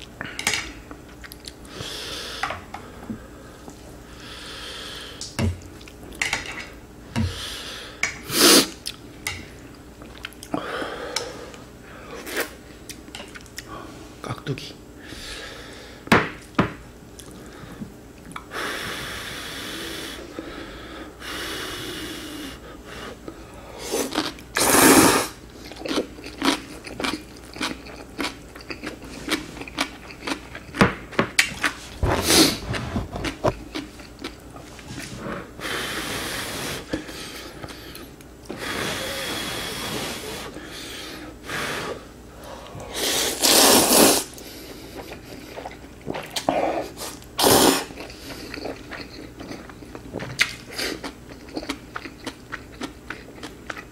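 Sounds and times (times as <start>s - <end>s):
crunchy chewing: 25.6s - 30.8s, 31.4s - 35.1s, 44.6s - 53.9s
noodles being slurped: 43.0s - 49.2s.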